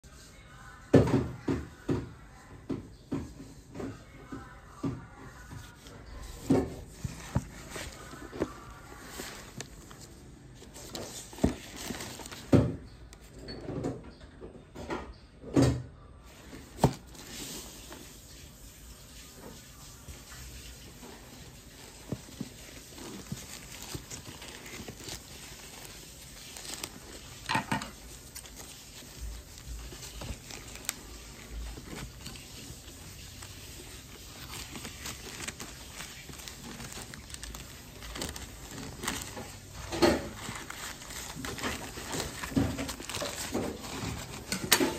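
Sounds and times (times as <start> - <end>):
plastic wrapping rustling: 5.2 - 13.6, 16.3 - 44.9
plastic crinkling: 5.3 - 13.4, 16.3 - 44.9
scissors cutting plastic bag: 22.7 - 44.9.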